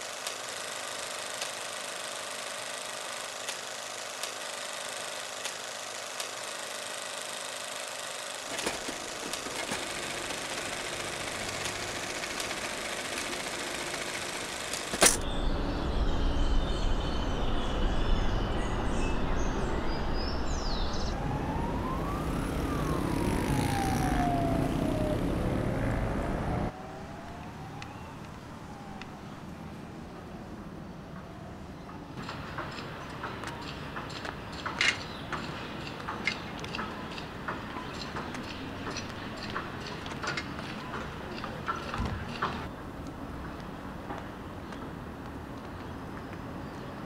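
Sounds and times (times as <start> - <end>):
quiet street hum: 0.0 - 47.0
city traffic noise: 8.5 - 47.0
emergency siren wailing: 20.9 - 30.0.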